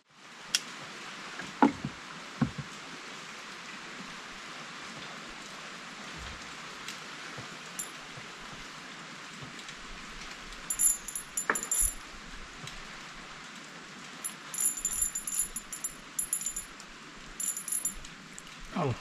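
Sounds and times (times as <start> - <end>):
steady rain falling: 0.0 - 19.0
high-pitched tinkling pulses: 14.3 - 16.7.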